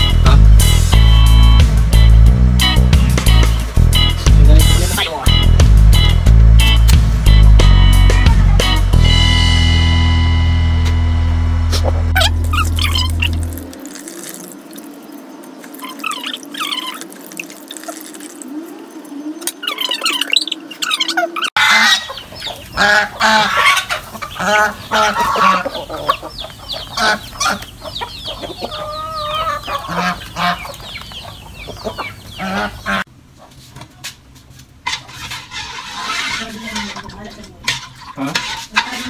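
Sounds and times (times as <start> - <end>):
liquid dripping: 12.4 - 18.6
chickens clucking: 15.0 - 34.2, 34.8 - 39.0
geese calling: 15.7 - 33.1.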